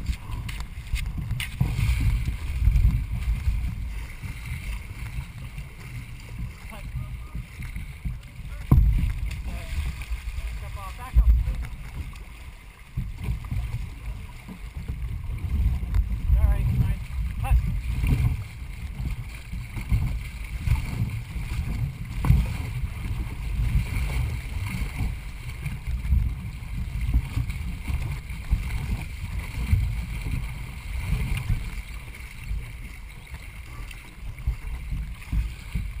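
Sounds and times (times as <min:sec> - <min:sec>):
low rumble on microphone: 0:00.0 - 0:36.0
water rushing along hull: 0:00.0 - 0:36.0.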